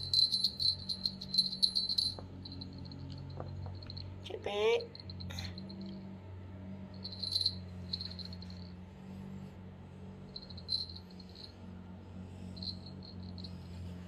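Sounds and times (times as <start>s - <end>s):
small jingle bell rattling: 0.0s - 6.0s, 6.9s - 8.7s, 10.3s - 11.6s, 12.6s - 13.8s
low steady hum: 0.0s - 14.0s.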